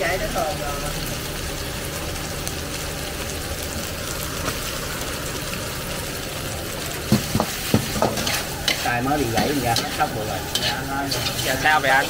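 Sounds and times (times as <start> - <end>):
low rumble of gas burner: 0.0 - 12.0
vegetables sizzling in a wok: 0.0 - 12.0
wok knocking on burner: 7.1 - 10.7.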